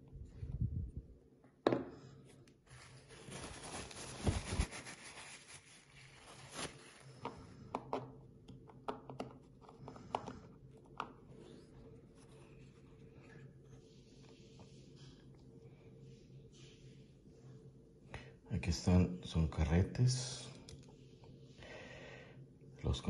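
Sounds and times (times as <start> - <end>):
rubbing and scraping: 2.7 - 6.9.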